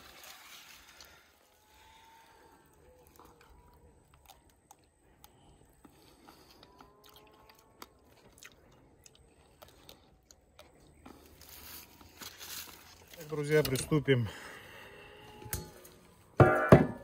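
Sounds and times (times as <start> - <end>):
hands handling grapes: 2.8 - 14.2.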